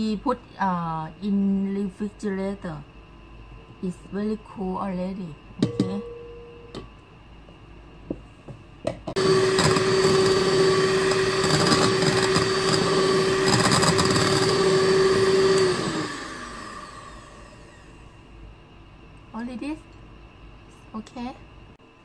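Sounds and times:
electric hand mixer whirring: 9.1s - 18.0s.

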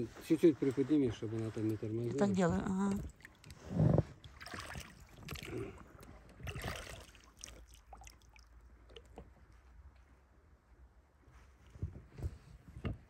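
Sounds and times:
water swishing against boat: 0.0s - 9.4s.

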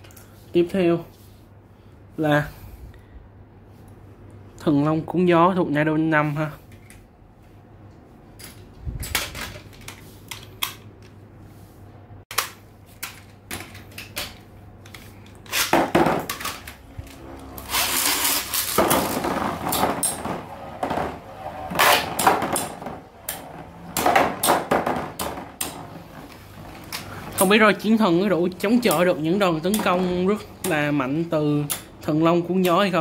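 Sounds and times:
spinning tops grinding and rattling: 15.4s - 27.4s.

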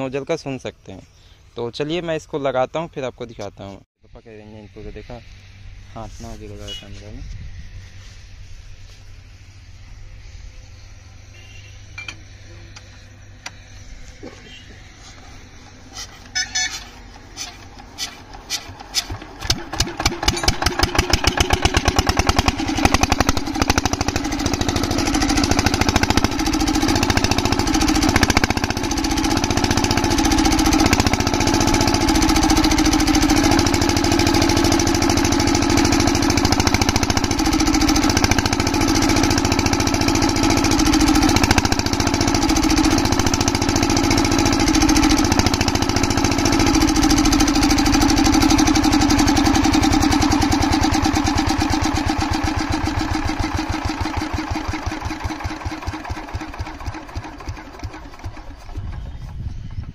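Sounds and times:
diesel engine running: 4.6s - 59.9s.

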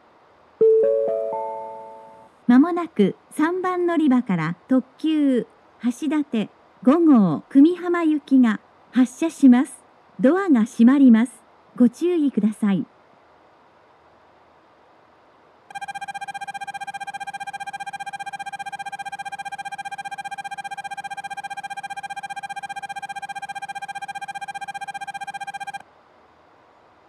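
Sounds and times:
warbling electronic bell: 0.6s - 2.3s, 15.7s - 25.8s.

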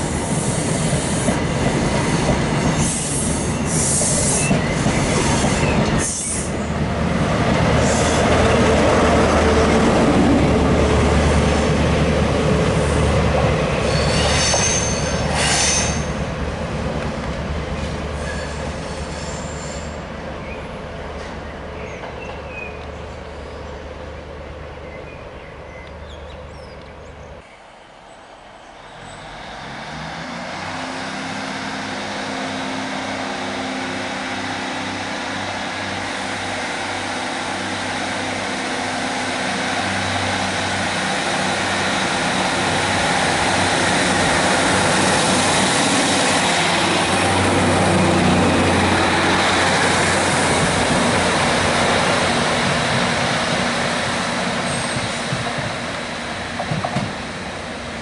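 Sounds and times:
train coaches rolling past: 0.0s - 58.0s
train wheels squealing: 13.8s - 16.2s, 18.2s - 20.0s, 54.6s - 55.3s.

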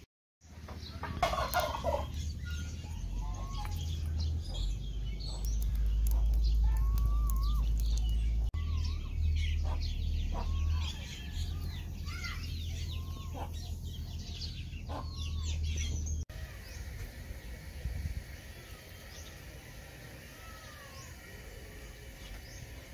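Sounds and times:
small birds chirping: 0.4s - 22.9s
chickens clucking: 0.6s - 4.6s, 9.5s - 11.3s, 12.8s - 16.0s.

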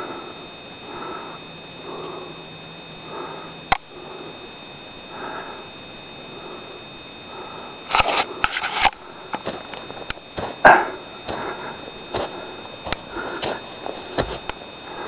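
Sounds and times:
person breathing heavily: 0.0s - 15.0s
scuffing and rustling: 8.1s - 15.0s.

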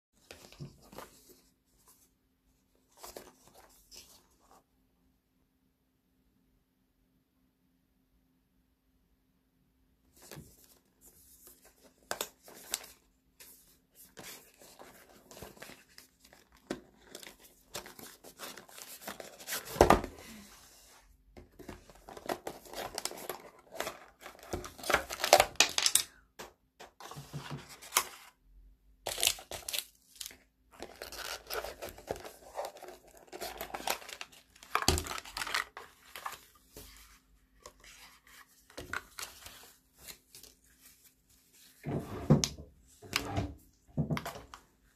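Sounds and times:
packaging rustling and tearing: 21.6s - 26.1s, 29.1s - 36.6s.

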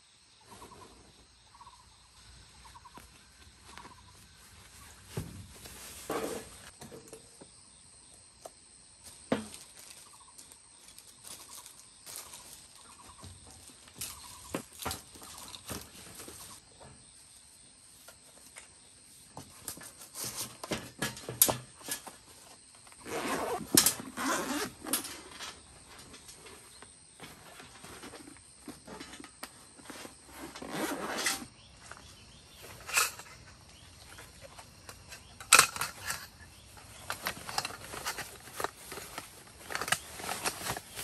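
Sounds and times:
carrying case rustling: 20.1s - 41.0s.

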